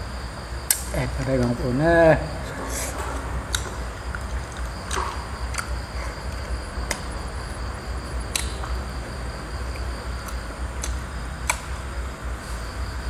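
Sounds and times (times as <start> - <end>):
crickets chirping: 0.0 - 13.0
low steady rumble: 1.9 - 13.0
tearing and eating clicks: 8.3 - 8.8, 9.7 - 11.7.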